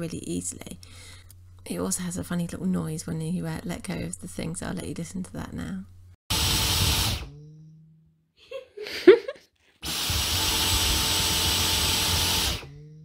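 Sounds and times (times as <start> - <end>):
vacuum motor running: 6.3 - 7.5, 9.8 - 13.0
motor spinning down hum: 6.3 - 8.0, 9.8 - 13.0.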